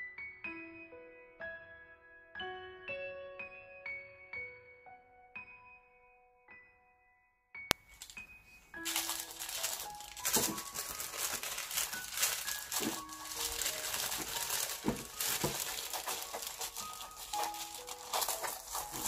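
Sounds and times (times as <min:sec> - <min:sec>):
soft background music: 0:00.0 - 0:19.0
tissue paper crinkling: 0:07.9 - 0:19.0.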